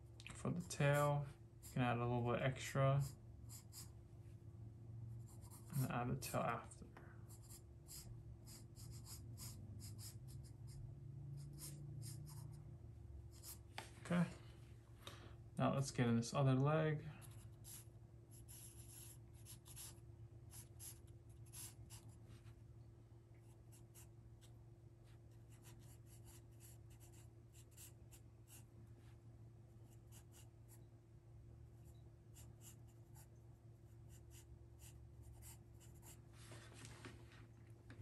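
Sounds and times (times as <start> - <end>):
pencil scratching on paper: 3.0 - 3.9, 5.2 - 5.9, 7.3 - 10.8, 11.4 - 12.6, 13.3 - 13.6, 17.2 - 22.2, 23.4 - 24.5, 25.3 - 28.7, 29.8 - 30.8, 31.8 - 36.3.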